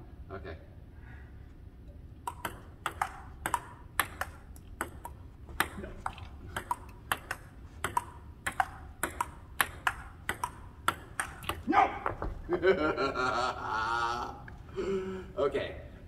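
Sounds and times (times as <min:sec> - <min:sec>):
ping-pong ball clicks: 0:02.2 - 0:11.7.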